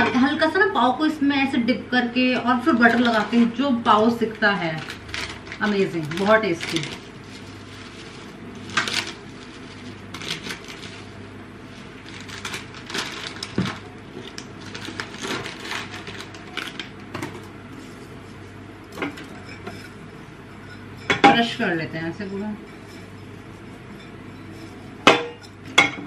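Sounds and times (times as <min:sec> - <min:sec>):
low steady hum: 0:00.0 - 0:26.0
metal utensil scraping a pan: 0:19.2 - 0:25.6.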